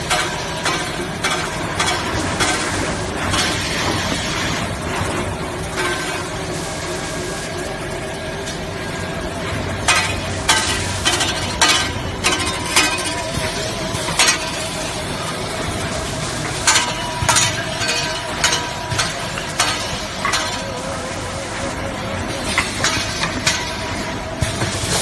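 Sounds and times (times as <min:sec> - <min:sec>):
machine hum with wavering tone: 0:00.0 - 0:25.0.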